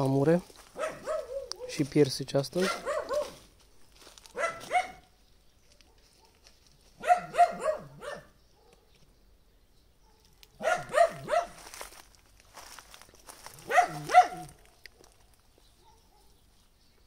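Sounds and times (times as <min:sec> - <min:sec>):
dog barking: 0:00.8 - 0:01.8, 0:02.6 - 0:03.4, 0:04.3 - 0:05.1, 0:05.9 - 0:06.4, 0:07.0 - 0:08.9, 0:10.0 - 0:11.6, 0:13.6 - 0:15.2, 0:15.8 - 0:16.4.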